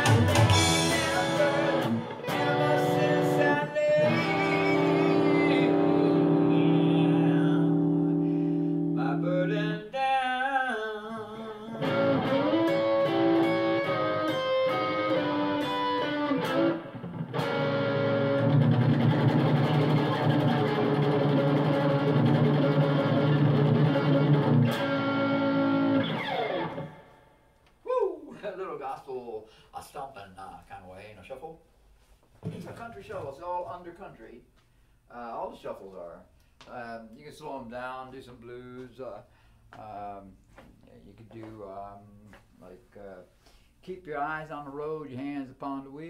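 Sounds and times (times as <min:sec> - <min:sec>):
electric guitar playing: 0:00.0 - 0:09.3, 0:11.8 - 0:27.3.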